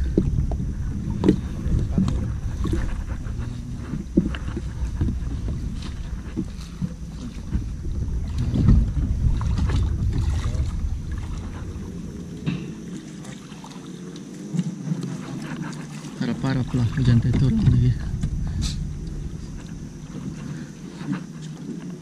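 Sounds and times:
wind buffeting microphone: 0:00.0 - 0:13.7, 0:15.5 - 0:22.0
wading and splashing in water: 0:00.0 - 0:22.0.

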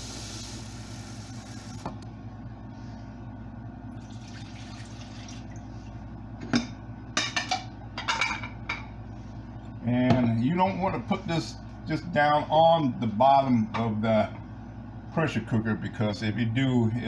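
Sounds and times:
water pouring into pot: 0:04.0 - 0:05.6.

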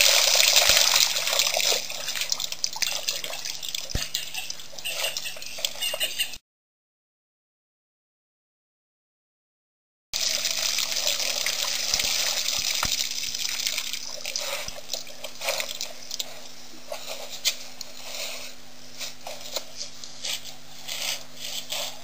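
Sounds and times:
water splashing and dripping: 0:00.0 - 0:06.0, 0:10.2 - 0:16.3
faint steady hum: 0:10.2 - 0:22.0.

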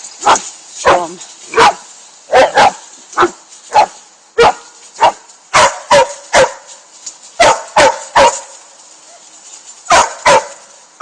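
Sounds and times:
dog barking: 0:00.2 - 0:06.7, 0:07.4 - 0:08.5, 0:09.9 - 0:10.6.

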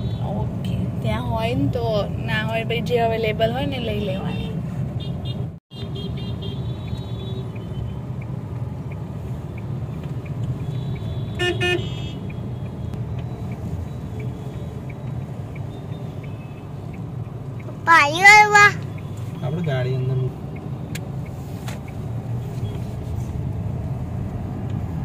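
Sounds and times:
car engine and road rumble: 0:00.0 - 0:25.0
vehicle horn honking: 0:05.0 - 0:07.5, 0:10.7 - 0:12.3.

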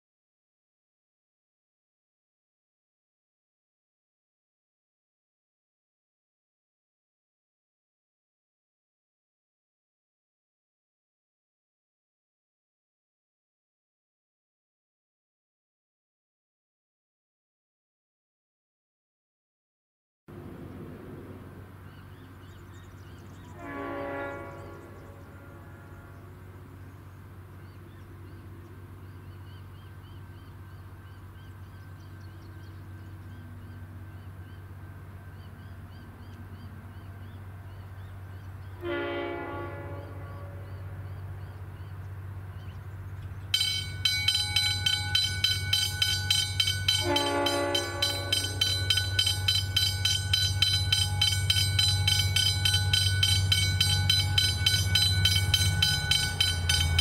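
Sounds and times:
diesel train engine rumble: 0:20.3 - 0:57.0
train horn: 0:23.4 - 0:26.8, 0:38.7 - 0:41.9, 0:43.6 - 0:57.0
level crossing warning bell ringing: 0:43.5 - 0:57.0.

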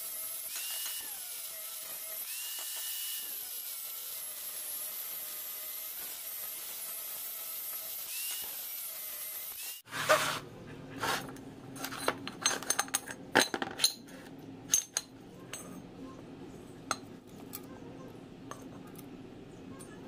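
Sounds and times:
low steady hum: 0:10.0 - 0:20.0
metal clinks and knocks: 0:11.7 - 0:14.1, 0:14.7 - 0:15.9.

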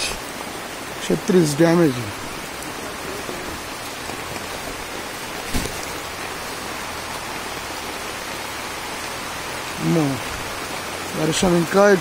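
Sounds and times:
heavy rain on leaves: 0:00.0 - 0:12.0
short thump: 0:05.5 - 0:06.0.

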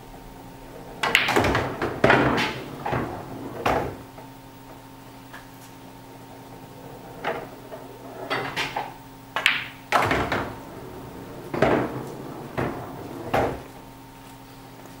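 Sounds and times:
billiard balls clacking: 0:00.5 - 0:04.8, 0:06.2 - 0:13.9
cue striking ball: 0:00.7 - 0:04.1, 0:06.5 - 0:13.8.

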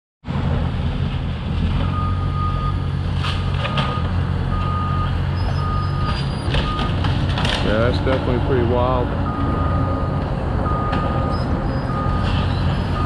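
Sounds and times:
diesel machinery rumbling: 0:00.2 - 0:13.0
reversing alarm beeping: 0:01.8 - 0:02.8, 0:03.7 - 0:07.0, 0:09.2 - 0:13.0.

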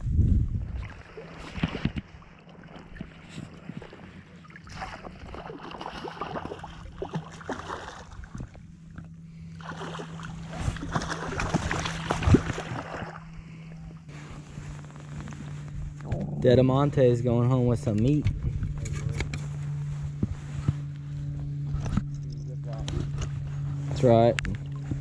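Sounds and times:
fish splashing in water: 0:04.6 - 0:08.4, 0:09.6 - 0:13.3.

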